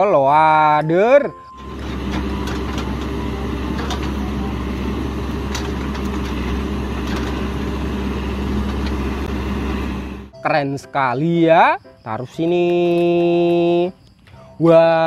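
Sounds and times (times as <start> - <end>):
diesel engine running: 1.5 - 10.3.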